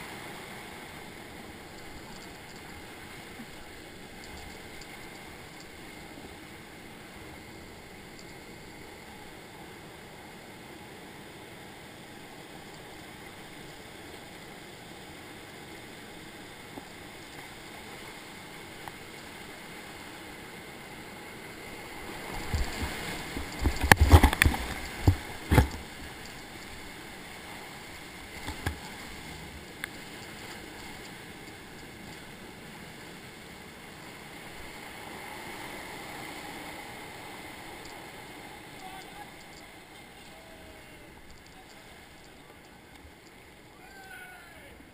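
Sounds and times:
river rushing through rapids: 0:08.8 - 0:44.9
kayak splashing and knocking: 0:22.1 - 0:26.6.

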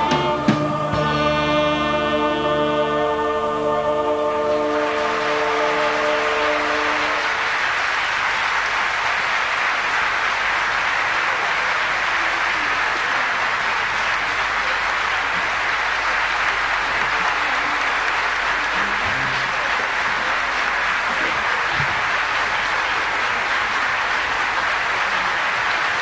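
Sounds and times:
orchestra and choir final chord: 0:00.0 - 0:07.9
audience applauding: 0:00.0 - 0:26.0.

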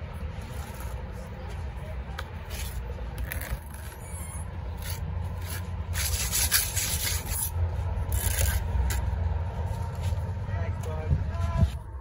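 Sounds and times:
trowel scraping wet mortar: 0:02.5 - 0:09.0.

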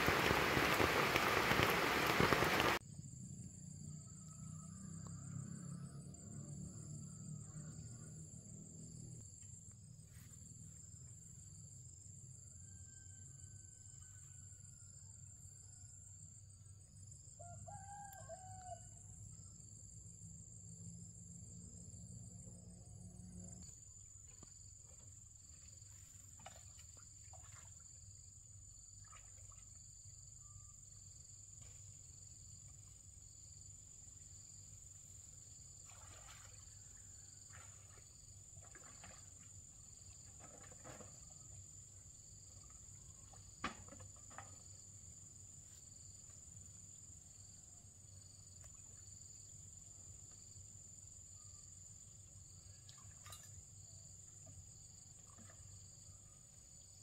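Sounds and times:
high insect drone: 0:00.0 - 0:14.4
distant rooster crowing: 0:17.4 - 0:19.0.

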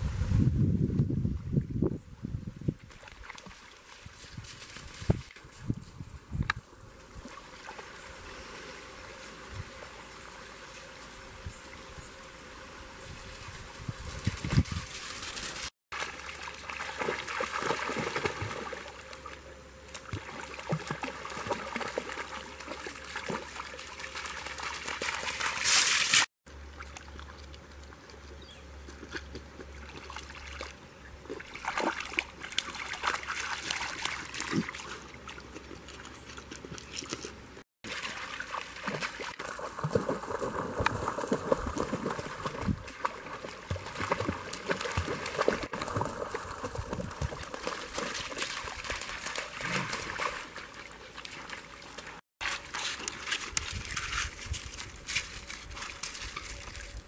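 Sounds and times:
creek water running over gravel: 0:13.2 - 0:57.0
puppies splashing in water: 0:15.0 - 0:28.2, 0:28.8 - 0:57.0.

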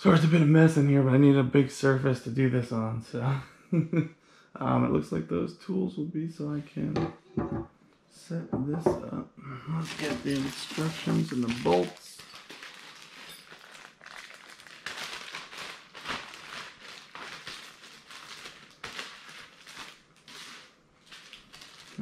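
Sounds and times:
plastic bag rustling and crinkling: 0:09.8 - 0:22.0.

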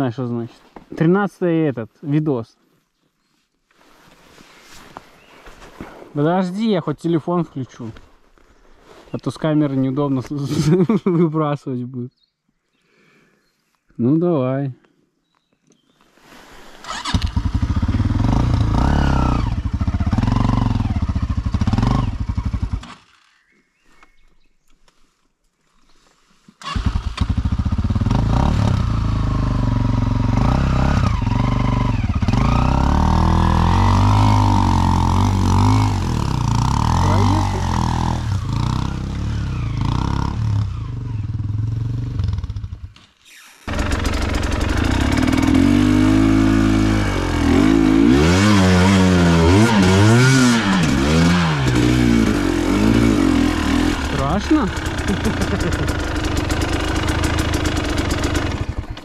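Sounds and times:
motorcycle engines revving: 0:16.9 - 0:23.0, 0:26.7 - 0:42.9, 0:43.7 - 0:59.0
close motorcycle engine revving: 0:16.9 - 0:23.1, 0:26.6 - 0:43.0, 0:43.7 - 0:59.0.

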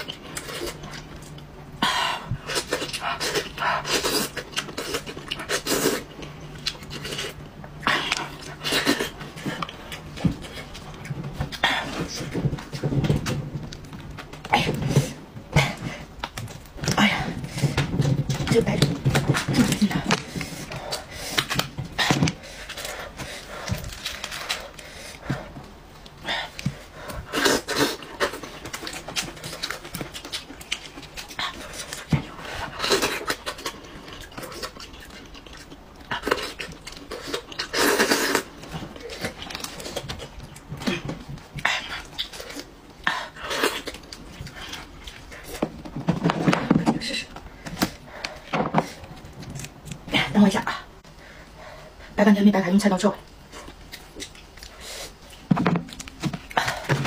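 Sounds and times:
wet chewing and sucking: 0:02.2 - 0:18.0, 0:18.9 - 0:45.7.

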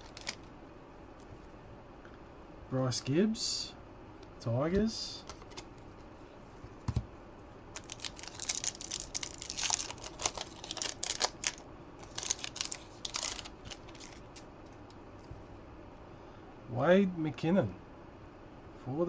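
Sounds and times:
foil wrapper crinkling: 0:00.0 - 0:00.5, 0:07.7 - 0:14.8.

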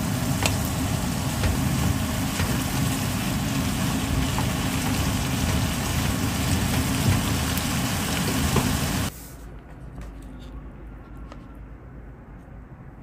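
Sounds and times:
food sizzling in a frying pan: 0:00.0 - 0:09.1
spatula stirring: 0:00.0 - 0:09.1.

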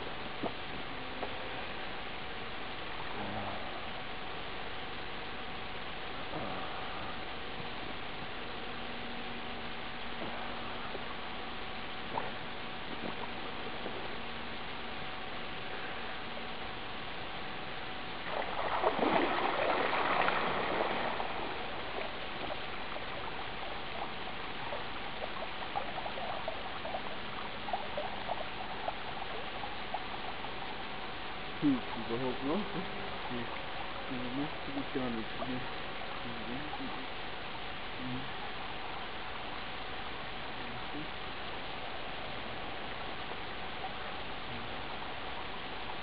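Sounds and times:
recording hiss and hum: 0:00.0 - 0:46.0
person wading through water: 0:18.2 - 0:31.4
water trickling: 0:18.2 - 0:36.6.

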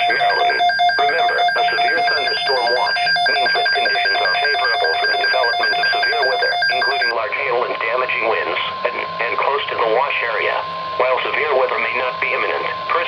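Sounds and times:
alert radios beeping: 0:00.0 - 0:09.4
radio voice broadcast: 0:00.0 - 0:13.0.

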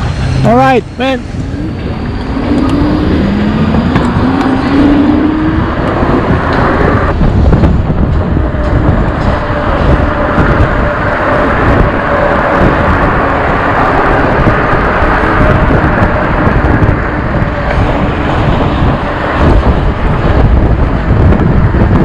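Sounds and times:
traffic noise: 0:00.0 - 0:22.0
wind noise on microphone: 0:00.0 - 0:22.0.

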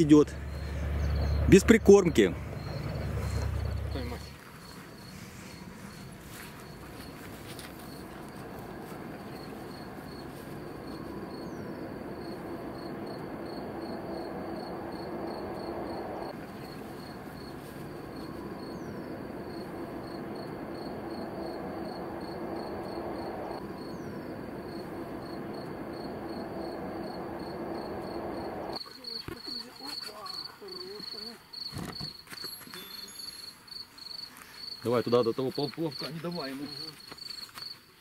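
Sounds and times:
outdoor rushing background: 0:00.0 - 0:28.8
insect chirping: 0:00.0 - 0:38.0.

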